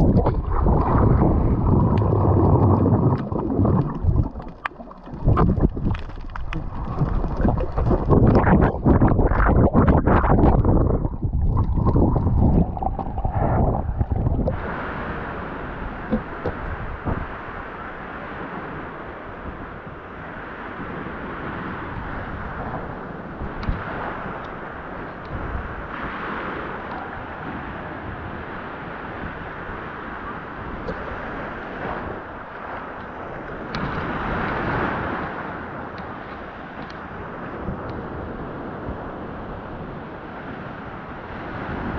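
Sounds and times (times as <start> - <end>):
water sloshing and bubbling: 0.0 - 28.5, 29.1 - 41.9
surf waves washing on sand: 0.0 - 41.9
wind: 0.0 - 41.9
small knocks and crackles: 3.2 - 10.6
hiss of surf: 12.9 - 19.7.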